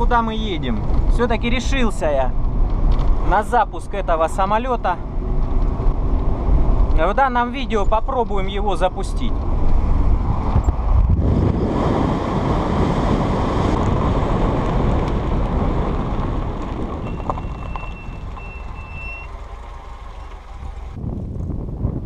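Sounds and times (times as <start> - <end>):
car engine and tyre rumble: 0.0 - 22.0
wind buffeting microphone: 9.3 - 22.0.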